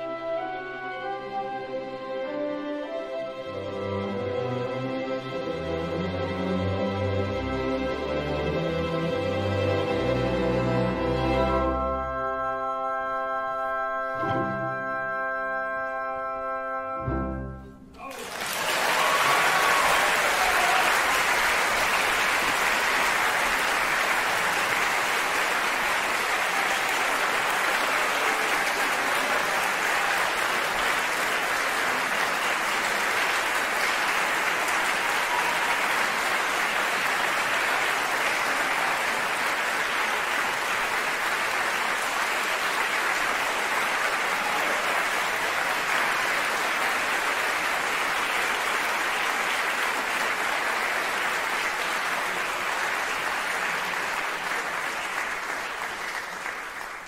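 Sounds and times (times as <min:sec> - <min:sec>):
audience applauding: 0:18.0 - 0:57.0.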